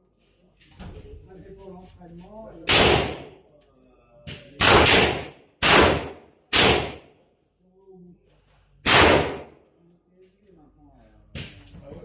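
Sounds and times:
pistol shots echoing: 2.7s - 3.4s, 4.6s - 7.1s, 8.8s - 9.6s.

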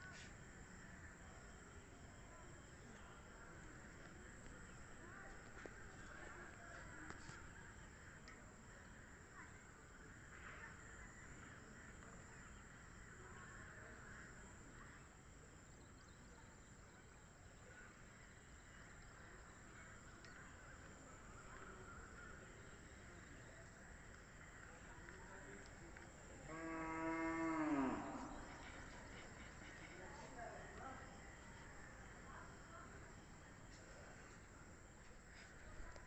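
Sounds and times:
distant bird calls: 15.8s - 34.5s.

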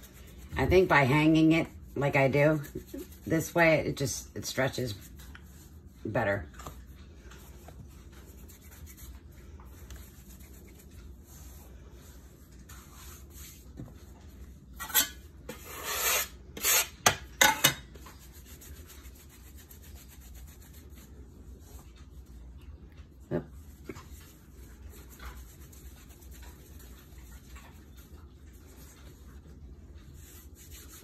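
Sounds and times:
hands rubbing bread dough: 0.0s - 17.0s, 17.9s - 31.0s
bench scraper scraping board: 14.8s - 17.2s.

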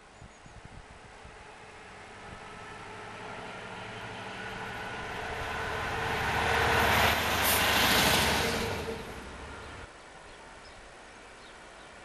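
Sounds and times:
wheels rumbling on rails: 0.8s - 9.9s
diesel locomotive engine drone: 0.9s - 9.9s.

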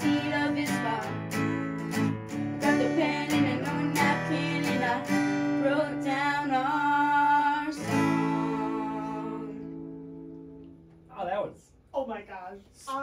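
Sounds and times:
girl singing: 0.0s - 2.0s, 2.6s - 9.8s
acoustic guitar strumming: 0.0s - 11.1s.

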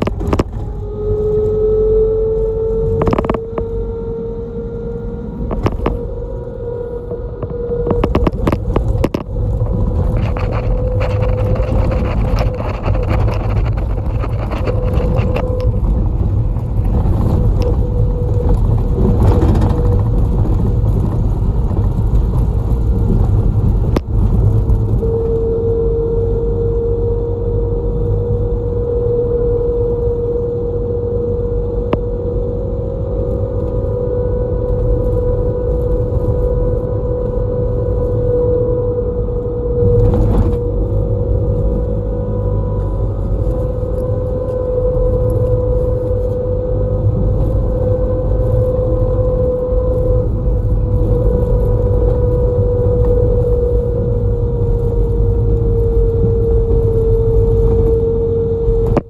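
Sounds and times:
single-pitch whine: 0.0s - 20.2s, 24.8s - 59.0s
bus engine and road rumble: 0.0s - 59.0s.

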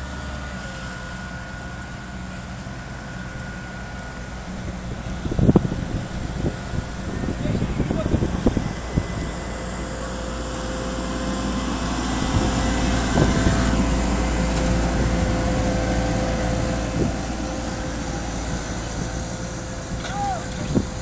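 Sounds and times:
diesel engine humming: 0.0s - 21.0s.

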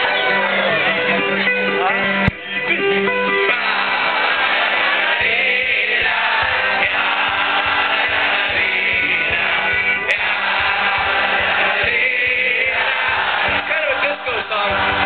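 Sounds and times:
accordion: 0.0s - 15.0s
acoustic guitar: 0.0s - 15.0s
voices singing together: 3.4s - 15.0s.

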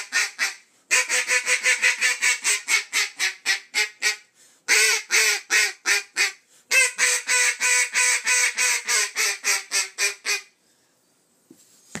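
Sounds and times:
duck call quacks: 0.0s - 10.5s.

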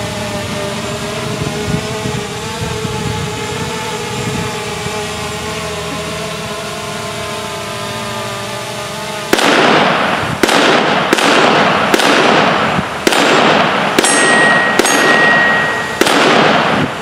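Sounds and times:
steady hum: 0.0s - 17.0s
pistol shots with echo: 9.3s - 17.0s
high ringing tone: 14.0s - 16.1s.

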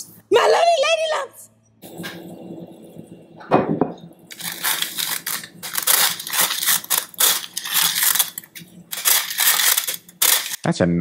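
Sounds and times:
flour sifter rasping: 4.3s - 10.6s.

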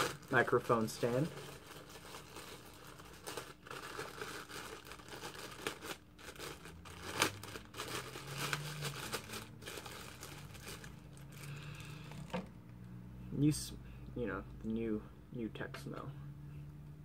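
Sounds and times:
plastic wrapping crinkling: 0.0s - 12.5s.

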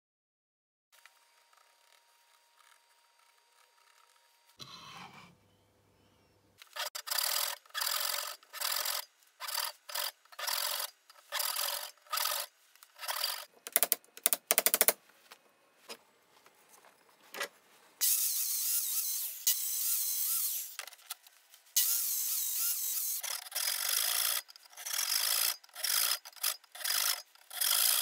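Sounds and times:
handsaw cutting wood: 18.0s - 20.8s, 21.8s - 28.0s.

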